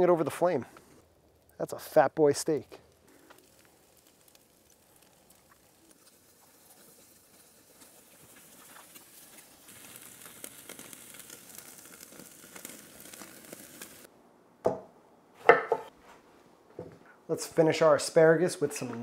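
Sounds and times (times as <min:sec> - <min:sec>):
steak sizzling over charcoal: 0:00.0 - 0:14.1.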